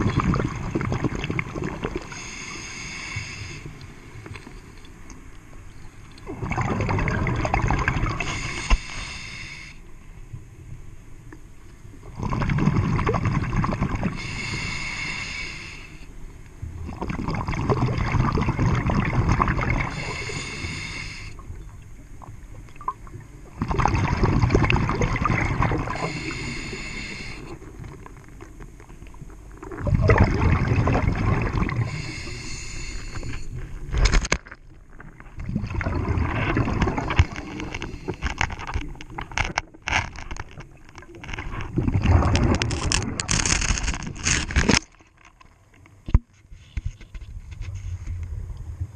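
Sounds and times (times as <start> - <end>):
diver exhaling bubbles: 6.2 - 8.6, 12.1 - 14.7, 16.8 - 20.9, 23.6 - 27.8, 29.6 - 33.4, 35.1 - 38.3, 41.6 - 43.6.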